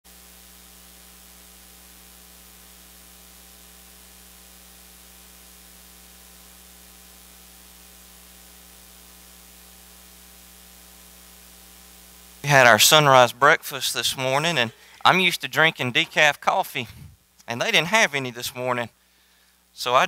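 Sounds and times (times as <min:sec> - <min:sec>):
constant hiss: 0:00.1 - 0:20.0
electrical mains hum: 0:00.1 - 0:20.0.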